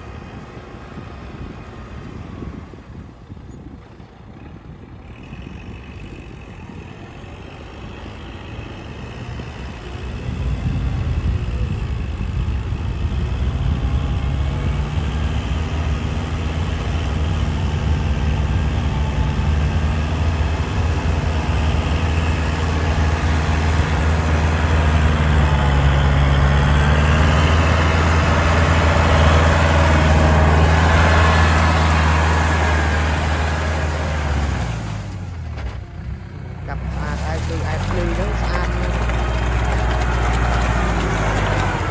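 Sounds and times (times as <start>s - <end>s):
tractor diesel engine under load: 0.0s - 41.9s
rotary tiller churning mud: 36.7s - 41.9s.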